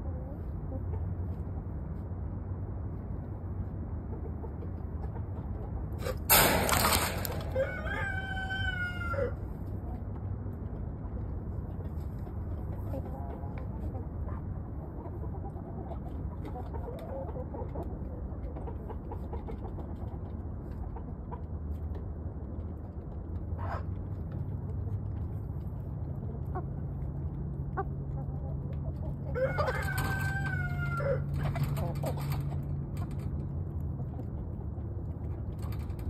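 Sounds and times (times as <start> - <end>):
chickens clucking: 0.0 - 2.1, 2.9 - 36.0
drawn-out chicken call: 6.0 - 9.5, 27.8 - 32.6.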